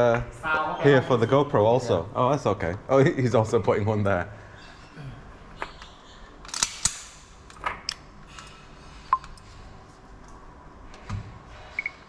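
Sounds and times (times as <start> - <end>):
pistol metallic clicks: 6.4 - 7.2.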